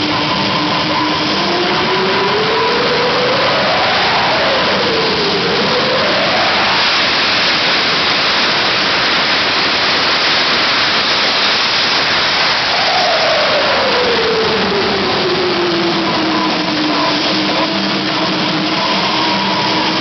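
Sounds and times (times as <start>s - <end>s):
jet engine roaring: 0.0s - 20.0s.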